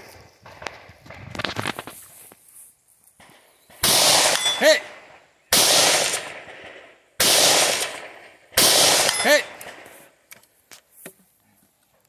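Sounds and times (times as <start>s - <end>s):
rifle shots echoing: 3.2s - 10.2s.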